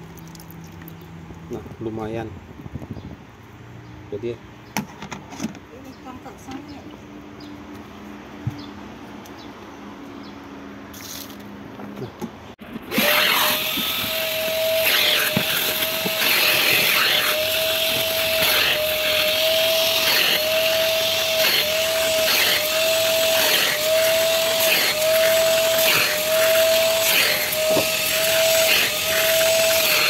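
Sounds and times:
vacuum cleaner whine: 12.8s - 30.0s.

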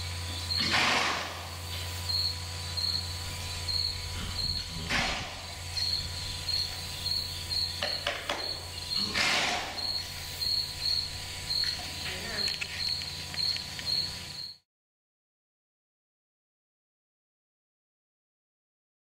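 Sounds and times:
low steady hum: 0.0s - 14.6s
cricket chirping: 1.5s - 14.6s.

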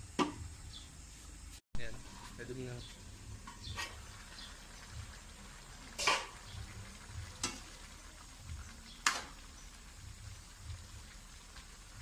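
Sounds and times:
vegetables sizzling in a wok: 0.0s - 12.0s
metal spoon clanking on pan: 6.0s - 6.4s, 7.4s - 7.7s.

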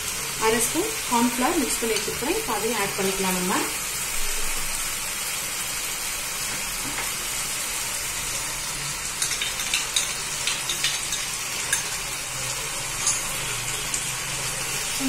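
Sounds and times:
sauce sizzling in a frying pan: 0.0s - 15.0s.

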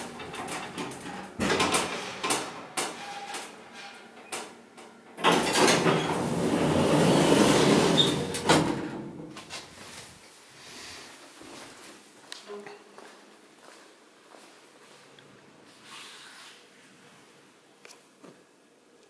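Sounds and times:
sliding doors rattling open: 0.0s - 9.4s.

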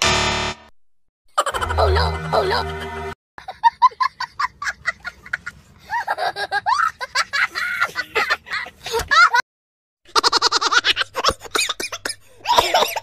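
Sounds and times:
young child laughing: 3.4s - 9.4s, 10.1s - 13.0s.

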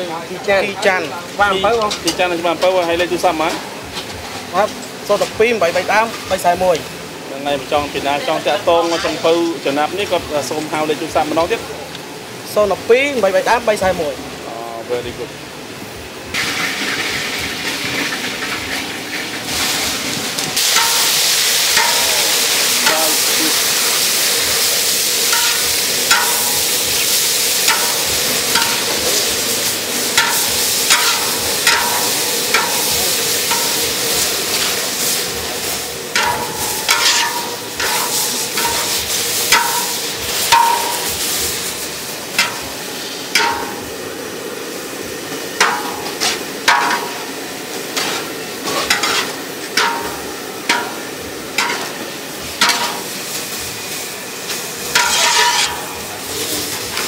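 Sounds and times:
food sizzling in pan: 0.0s - 57.0s
metal spatula stirring: 20.6s - 43.9s, 45.6s - 47.2s, 47.9s - 52.0s, 52.6s - 53.2s, 54.9s - 56.0s
spatula clinking on pan: 25.3s - 26.8s, 30.2s - 34.0s, 36.2s - 41.2s.

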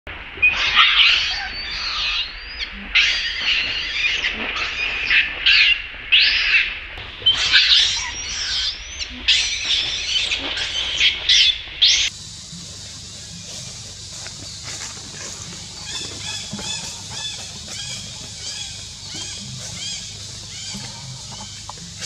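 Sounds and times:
monkey screaming: 7.2s - 10.2s, 14.6s - 22.0s.

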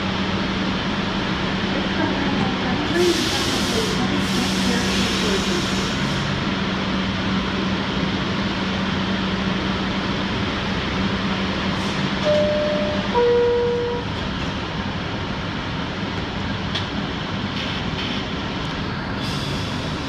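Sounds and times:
subway car electrical hum: 0.0s - 20.0s
two-note electronic door chime: 12.3s - 14.0s.

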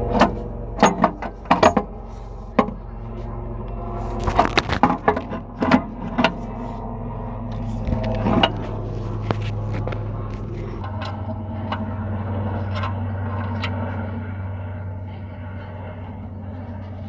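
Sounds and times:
steady low hum: 0.0s - 17.0s
metal parts clinking and knocking: 0.2s - 1.9s.

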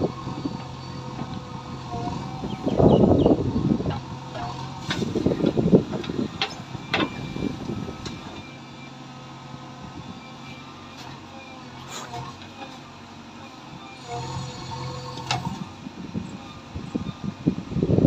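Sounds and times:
diesel engine running: 0.0s - 18.0s
metallic clanks of digger bucket: 3.9s - 7.4s.

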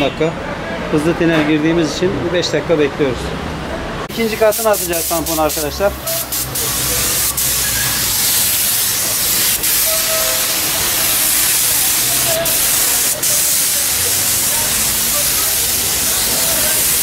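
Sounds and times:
paint spray gun hissing: 4.2s - 17.0s.

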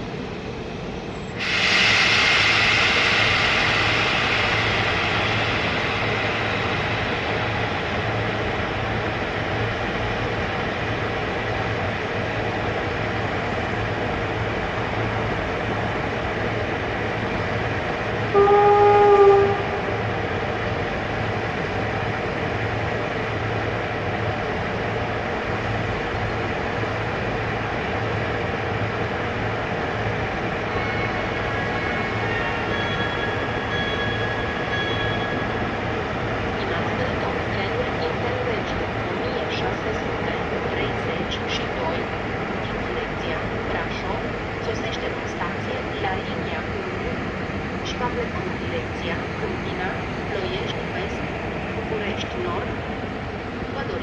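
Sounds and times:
train hum and rail noise: 0.0s - 54.0s
locomotive horn blast: 18.3s - 20.0s.

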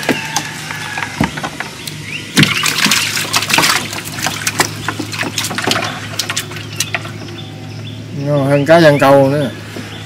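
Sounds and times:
fish flopping against hull: 0.0s - 7.5s
water splashing and pouring: 2.4s - 7.2s.

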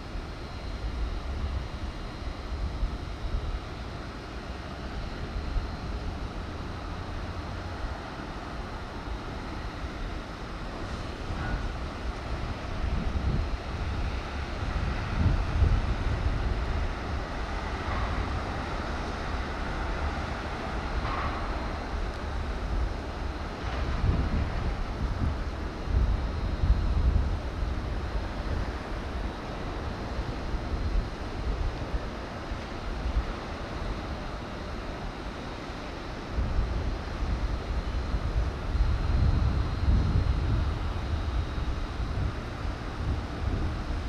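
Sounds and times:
steady outdoor hiss: 0.0s - 44.0s
wind buffeting microphone: 10.3s - 34.8s, 36.0s - 44.0s.

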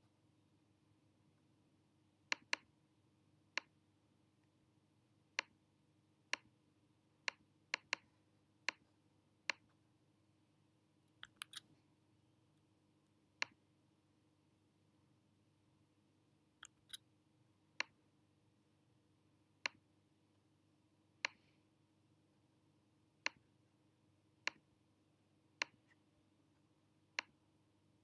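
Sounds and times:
faint steady hum: 0.0s - 28.0s
computer mouse clicks: 2.3s - 2.7s, 7.2s - 9.8s, 11.2s - 11.7s, 16.6s - 17.1s, 21.2s - 21.6s, 25.6s - 26.0s, 27.1s - 27.4s.

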